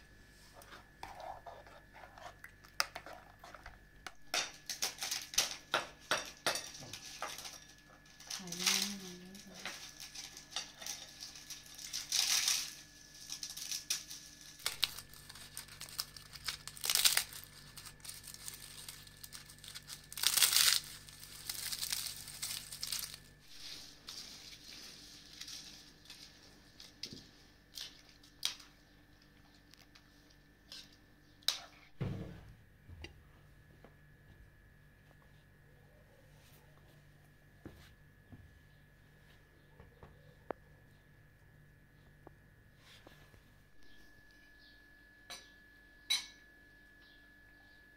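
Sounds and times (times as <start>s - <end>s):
flatbread crackling and crunching: 0.6s - 31.2s.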